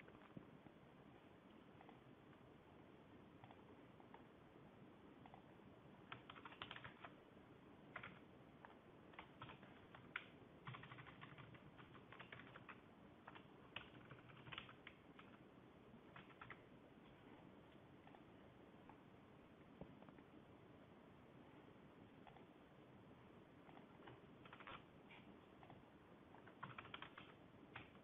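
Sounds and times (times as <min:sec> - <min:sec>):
computer keyboard typing: 0:06.1 - 0:07.2, 0:07.9 - 0:15.4, 0:16.1 - 0:16.6, 0:23.7 - 0:24.9, 0:25.6 - 0:28.0.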